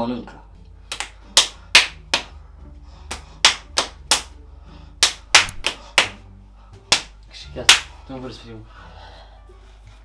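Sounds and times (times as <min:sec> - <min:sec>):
fist slapping into palm: 0:00.9 - 0:02.4, 0:03.1 - 0:04.4, 0:05.0 - 0:06.3, 0:06.9 - 0:08.0.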